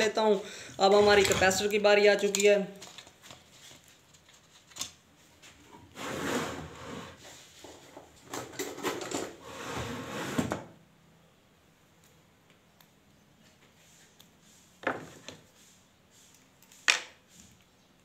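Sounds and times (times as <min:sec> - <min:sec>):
small parts scraping and rattling: 0:00.8 - 0:05.0.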